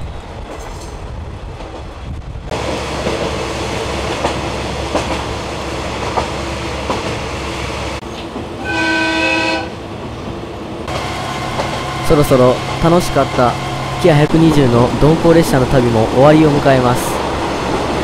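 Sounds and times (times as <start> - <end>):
train engine and rails rumbling: 0.0 - 18.0
train horn blast: 8.6 - 9.8.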